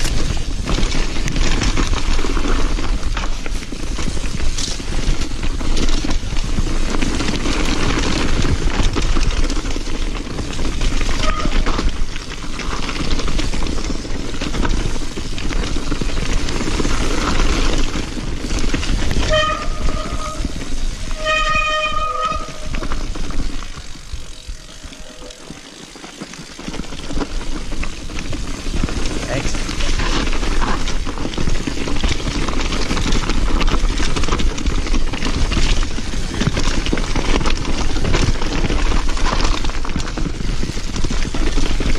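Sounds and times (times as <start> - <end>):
mountain bike rattling on trail: 0.0 - 41.9
short high squeals: 19.2 - 22.8, 23.9 - 26.0.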